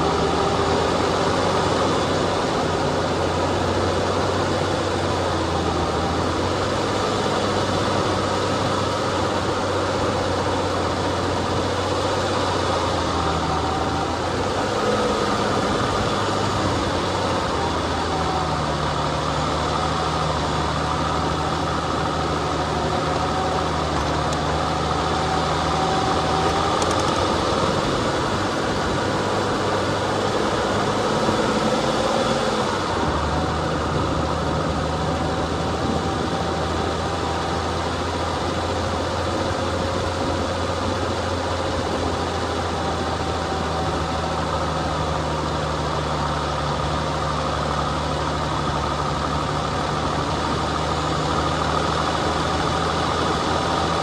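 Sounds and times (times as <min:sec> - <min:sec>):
off-road vehicle engine: 0:00.0 - 0:54.0.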